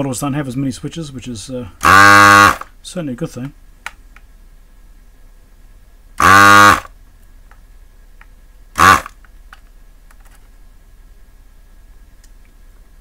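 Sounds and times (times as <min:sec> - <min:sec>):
desoldering gun pump buzzing: 0:01.8 - 0:02.7, 0:06.2 - 0:06.9, 0:08.8 - 0:09.2.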